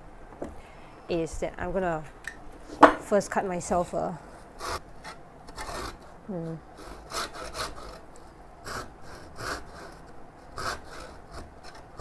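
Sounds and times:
saw rasping through wood: 4.6s - 6.1s, 6.8s - 12.0s.

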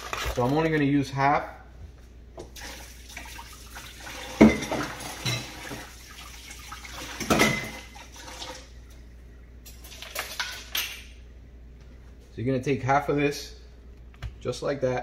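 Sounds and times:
kitchenware knocks and clinks: 4.4s - 5.8s, 7.2s - 7.8s.

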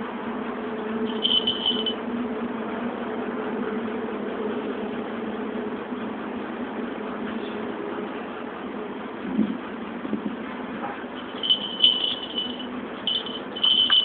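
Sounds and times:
low mechanical hum: 0.0s - 14.0s
high thin tone: 1.0s - 2.0s, 11.2s - 14.0s.

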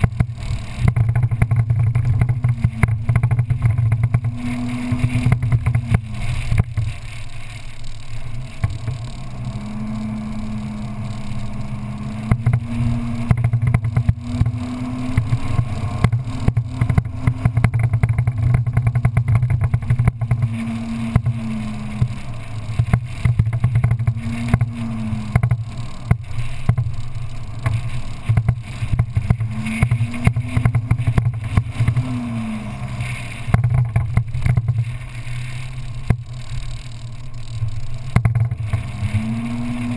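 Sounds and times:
knocks and rattles from bumpy ride: 0.0s - 7.2s, 10.6s - 32.4s, 33.4s - 39.9s
low rumble: 0.0s - 39.9s
off-road vehicle engine revving: 0.0s - 39.9s.

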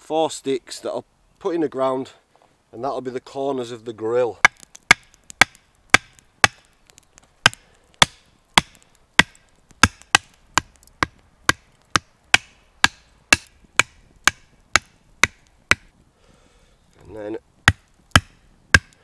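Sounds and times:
hatchet hammering wooden stakes: 4.4s - 6.8s, 7.4s - 15.9s, 17.6s - 19.0s.

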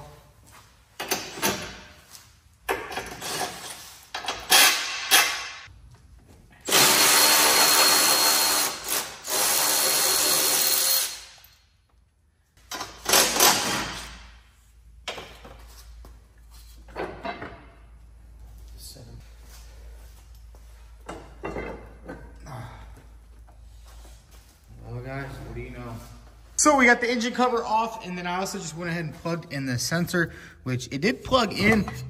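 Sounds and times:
metal clanks and knocks: 16.9s - 17.8s, 21.0s - 22.4s.

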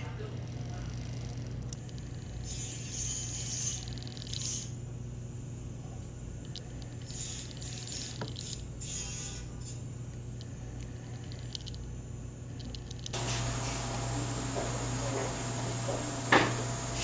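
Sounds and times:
steady low hum: 0.0s - 17.0s
drill bit scratchy cuts: 2.2s - 4.8s, 7.0s - 9.8s.

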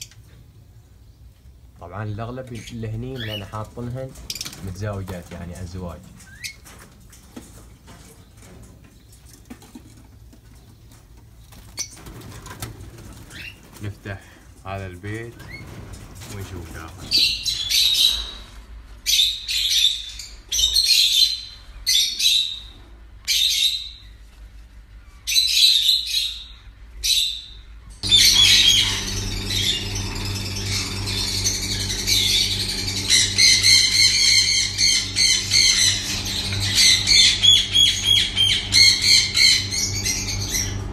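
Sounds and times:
parakeets squawking: 2.1s - 6.7s, 15.1s - 22.7s, 25.3s - 40.9s
steady low hum: 26.4s - 40.9s.

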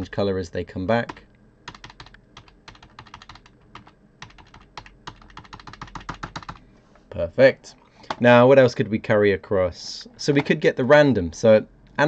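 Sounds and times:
keyboard keys clicking: 1.1s - 6.6s.

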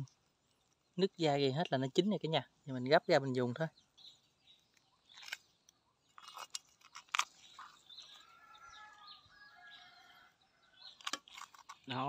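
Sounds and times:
faint rooster crow: 8.0s - 11.0s.

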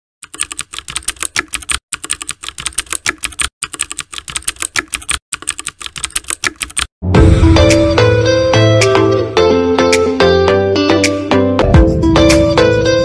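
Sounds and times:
keyboard key clicks: 0.2s - 6.9s.

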